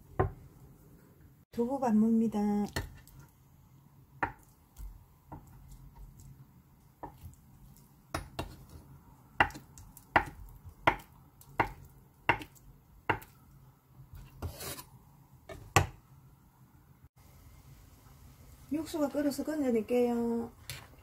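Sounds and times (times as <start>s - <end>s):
knife chopping on wooden board: 8.1s - 8.8s, 9.4s - 13.3s
knife scraping: 14.1s - 15.0s.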